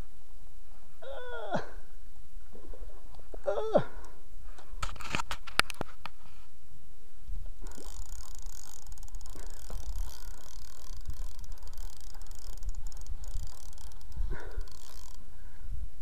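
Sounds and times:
fishing reel clicking whir: 0:07.6 - 0:15.4.

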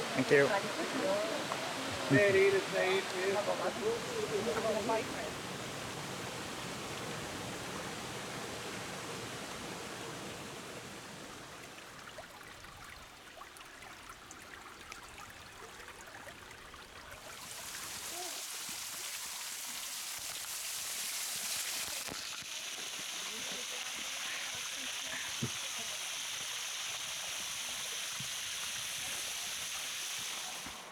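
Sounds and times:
flowing water hiss: 0:00.0 - 0:30.9.

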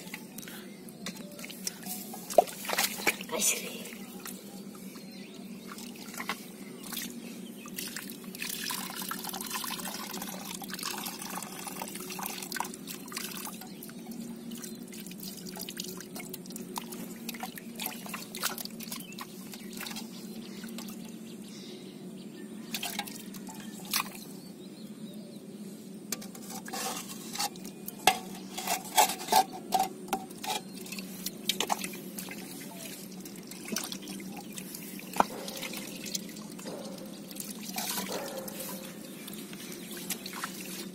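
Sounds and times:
water splashing in a steel bowl: 0:07.7 - 0:20.1, 0:22.7 - 0:24.2, 0:30.5 - 0:40.9.

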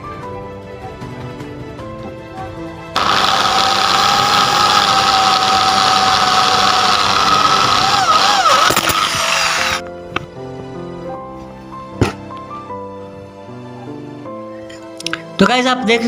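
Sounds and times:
background music: 0:00.0 - 0:16.0
electric drill boring into metal: 0:03.0 - 0:09.9.

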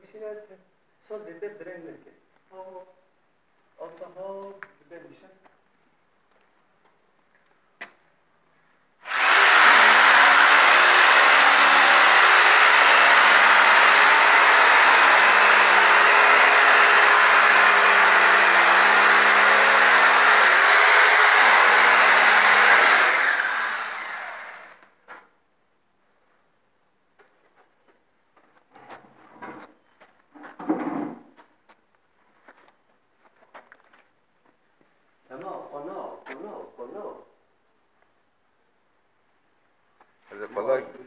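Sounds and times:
electric motor running: 0:09.0 - 0:24.8.

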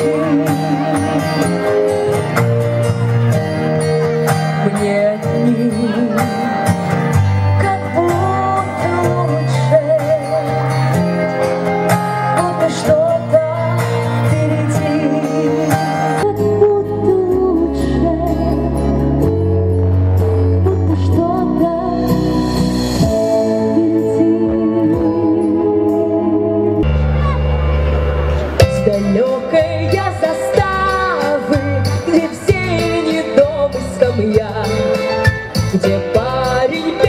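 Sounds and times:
woman singing with vibrato: 0:00.0 - 0:01.9, 0:04.6 - 0:06.7, 0:07.4 - 0:10.7, 0:12.3 - 0:19.0, 0:20.4 - 0:26.8, 0:28.6 - 0:35.1, 0:35.7 - 0:37.0
instrumental accompaniment: 0:00.0 - 0:37.0.

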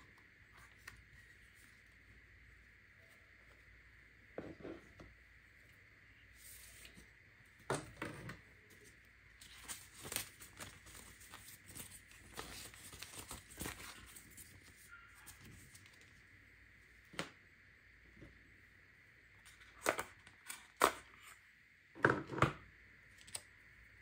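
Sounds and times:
paper crackling: 0:09.4 - 0:16.2.

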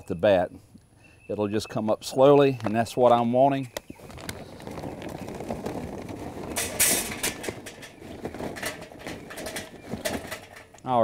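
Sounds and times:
charcoal clattering into metal: 0:05.3 - 0:11.0.

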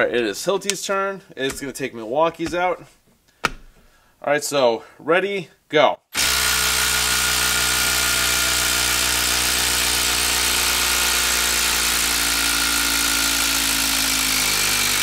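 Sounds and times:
impact driver hammering: 0:06.2 - 0:15.0.

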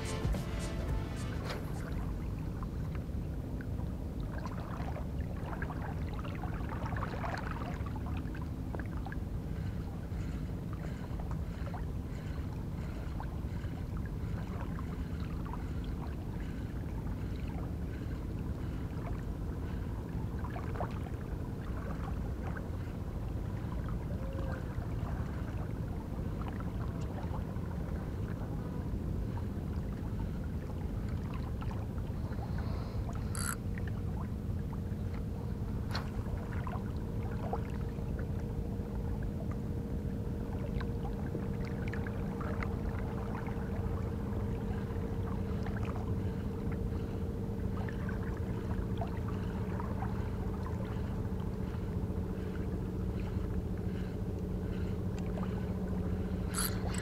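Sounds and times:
low outdoor rumble: 0:00.0 - 0:57.0
small clicks and splashes: 0:56.5 - 0:57.0.

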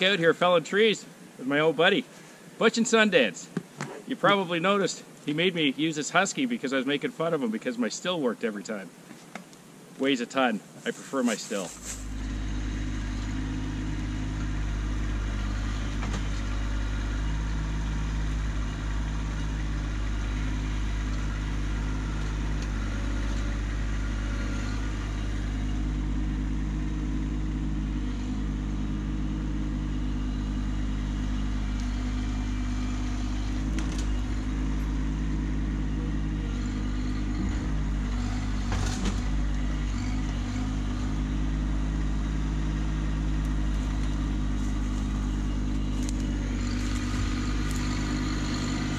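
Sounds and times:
tractor diesel engine running: 0:10.8 - 0:48.9.

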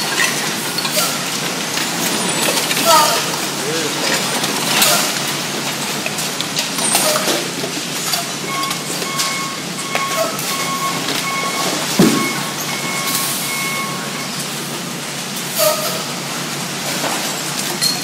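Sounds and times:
recyclables clattering onto concrete: 0:00.0 - 0:09.4
vehicle warning beeper: 0:08.4 - 0:14.5.

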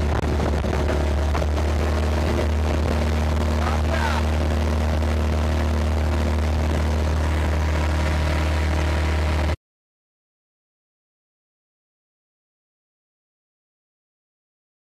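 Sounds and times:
motorboat engine droning: 0:00.0 - 0:09.6.

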